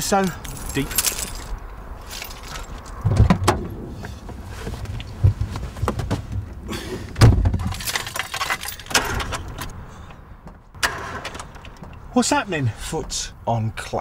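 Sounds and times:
keys and clothing rustling: 0.0 - 3.0, 7.6 - 9.8.

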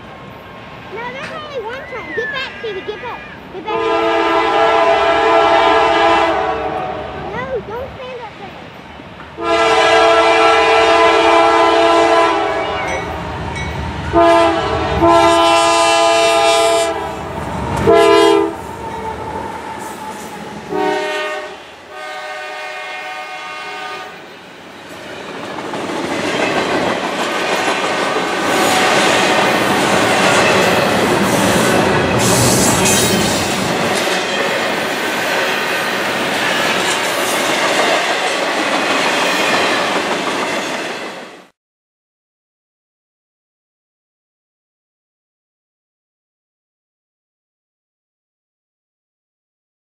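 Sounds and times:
train rumbling past: 0.0 - 41.5
wheels clacking over rail joints: 0.9 - 1.8, 24.8 - 41.3
locomotive air horn blasts: 3.7 - 7.2, 9.4 - 12.9, 14.1 - 17.1, 17.8 - 18.7, 20.7 - 24.2.

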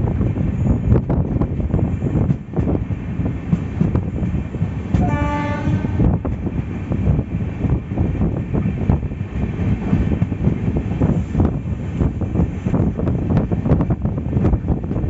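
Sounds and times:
train rumble and rattle: 0.0 - 15.0
train horn: 4.9 - 6.2.

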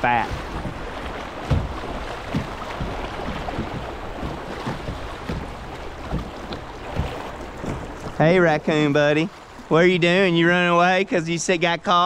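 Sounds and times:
low thumps: 0.0 - 8.4
river rapids rushing and splashing: 0.0 - 9.8.

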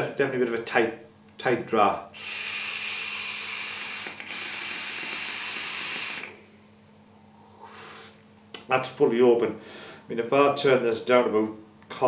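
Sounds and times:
vaporizer air hissing: 2.1 - 6.5, 7.4 - 8.2.

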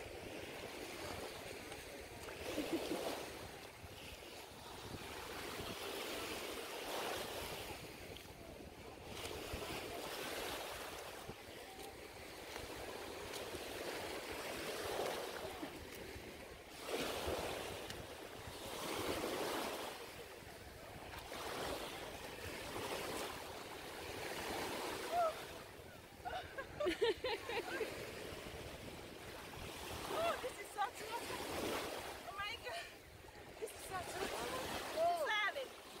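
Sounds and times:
sea water sloshing and splashing: 9.0 - 25.8.

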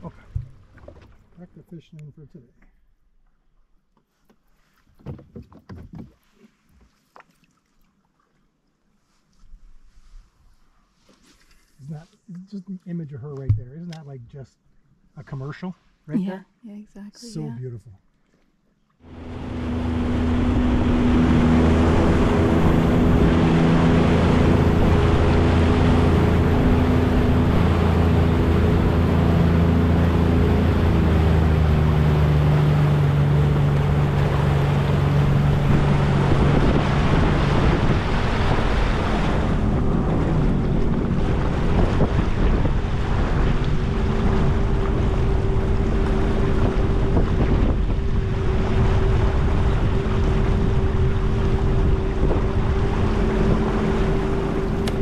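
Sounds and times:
water rushing from wake: 0.0 - 1.9, 19.0 - 55.0
watercraft engine droning: 0.0 - 4.5, 17.1 - 55.0
wind on microphone: 19.1 - 55.0.

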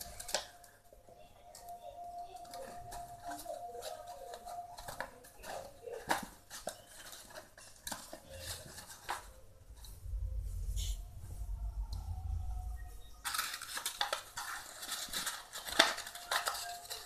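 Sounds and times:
paper crinkling as it is folded: 0.0 - 0.8, 1.5 - 9.4, 13.2 - 17.0.

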